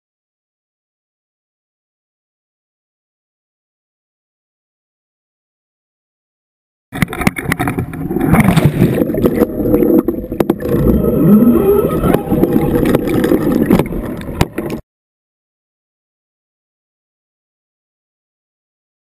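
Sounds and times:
muffled water rushing: 7.0 - 14.8.

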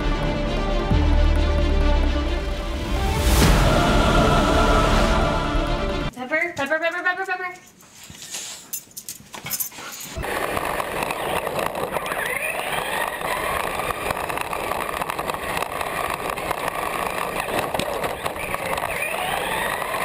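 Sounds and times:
toy car rolling and rattling: 10.1 - 20.0
small electric motor whine: 10.2 - 20.0.

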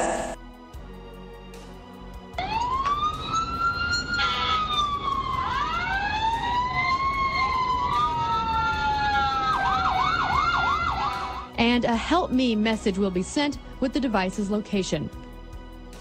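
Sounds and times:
sirens wailing: 2.3 - 11.5.

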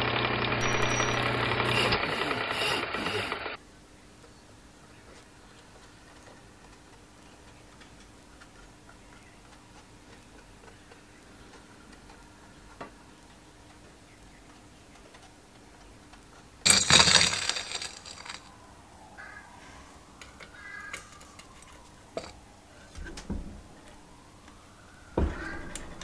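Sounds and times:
faint light ticks: 5.1 - 16.5
loud clattering burst: 16.7 - 18.5.

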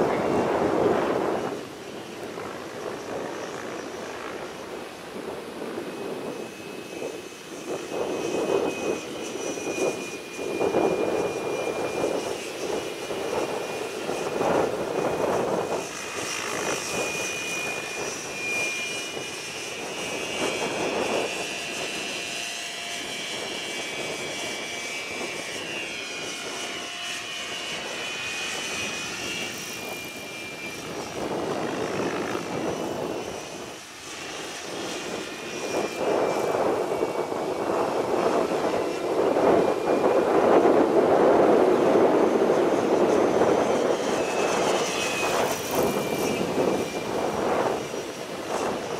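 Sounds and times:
rc helicopter rotor whine: 0.0 - 48.9
wind buffeting microphone: 0.0 - 48.9.

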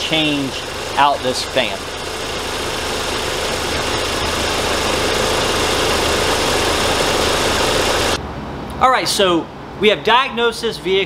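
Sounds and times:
car engine idling: 0.0 - 8.2.

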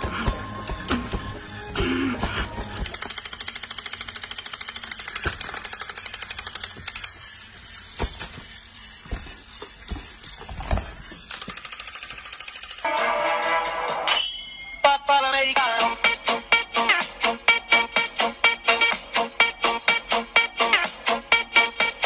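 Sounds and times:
toy gear mechanism rattling: 0.0 - 12.9.

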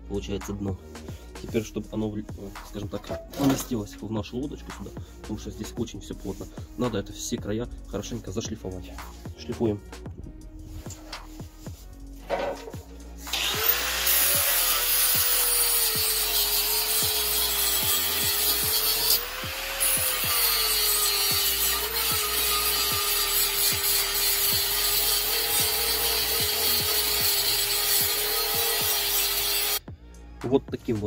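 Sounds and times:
angle grinder grinding steel: 12.2 - 29.8.

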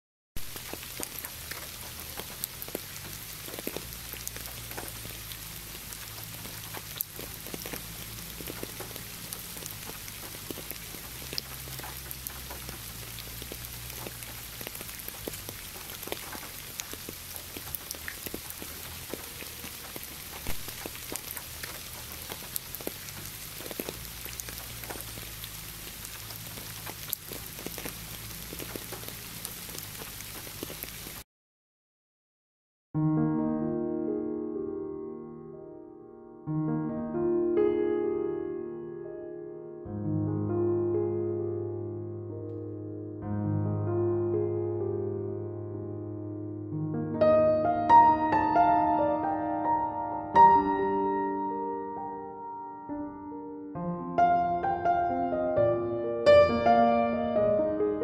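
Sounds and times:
steady rain falling: 0.4 - 31.2.

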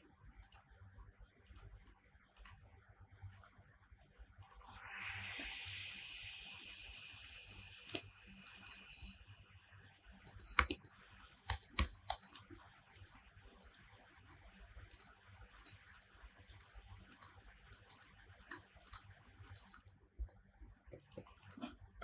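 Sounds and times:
mouse clicks: 0.4 - 0.7, 1.4 - 1.7, 2.4 - 2.6, 4.4 - 4.7, 5.4 - 5.8, 7.9 - 9.1, 10.2 - 12.5, 13.6 - 13.8, 14.9 - 15.8, 16.5 - 21.8
faint hiss: 4.7 - 9.2
keyboard keystrokes: 10.3 - 10.9, 11.5 - 12.4.

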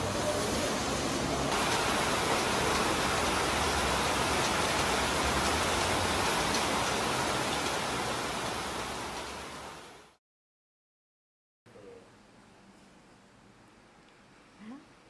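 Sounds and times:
heavy rain: 0.0 - 10.2.

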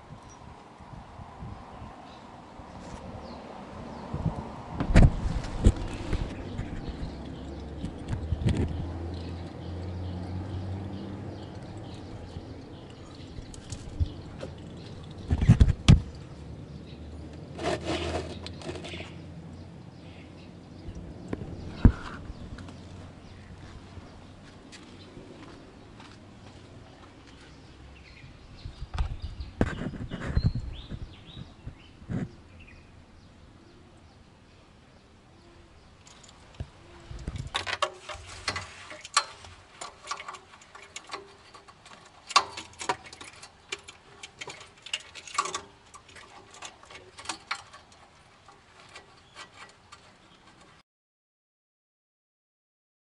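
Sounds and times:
clicks knocks and scrapes: 4.2 - 7.2, 7.8 - 9.5, 13.3 - 16.2, 17.3 - 19.2, 28.9 - 32.4, 36.0 - 50.8
dull thumps and rustles: 4.2 - 7.2, 15.2 - 16.2.

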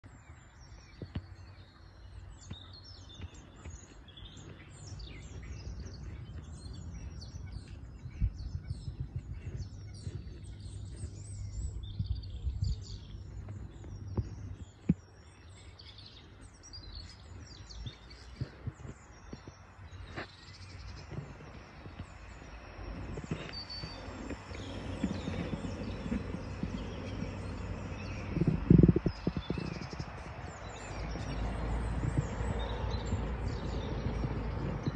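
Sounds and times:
songbirds chirping: 0.0 - 34.9
low outdoor rumble: 20.0 - 34.9.

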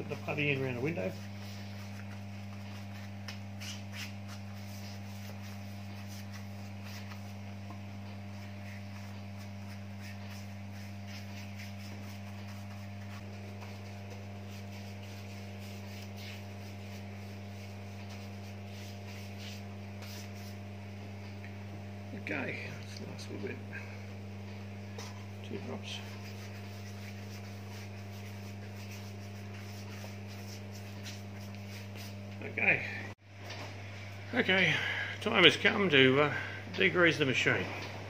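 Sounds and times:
low electrical hum: 0.0 - 38.0
bristle brush scratching on wood: 0.1 - 20.7, 24.9 - 32.2.

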